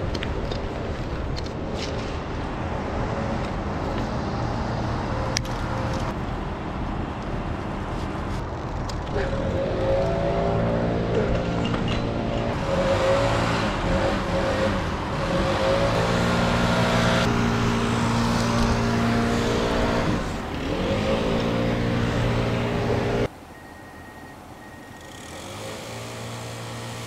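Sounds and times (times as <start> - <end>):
engine running at high revs: 9.0 - 23.3, 25.0 - 27.0.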